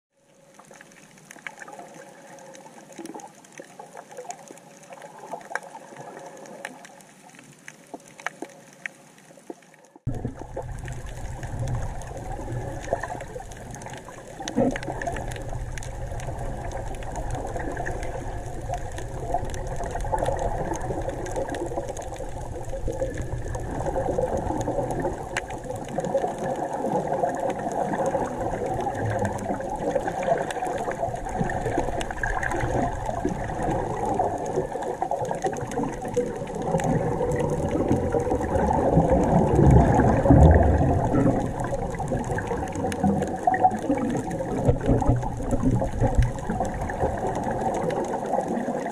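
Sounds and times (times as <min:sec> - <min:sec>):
air bubbling underwater: 0:10.1 - 0:48.9.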